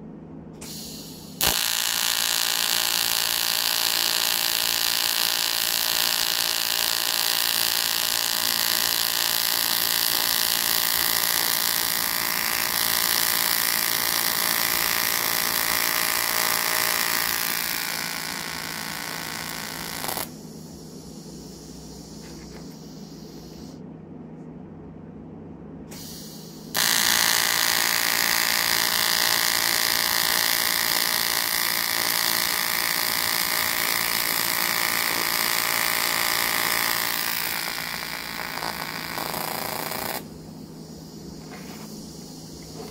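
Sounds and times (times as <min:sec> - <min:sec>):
low hum: 0:00.0 - 0:42.9
welding arc buzzing: 0:00.6 - 0:23.8, 0:26.0 - 0:42.9.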